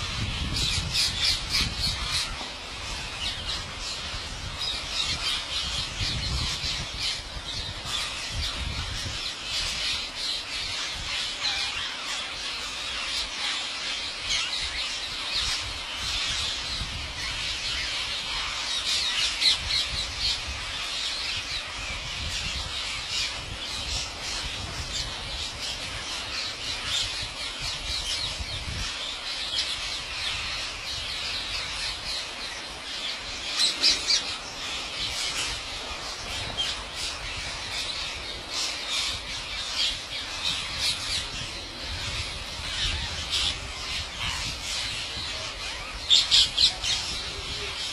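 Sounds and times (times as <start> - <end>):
parakeets squawking: 29.6 - 47.9.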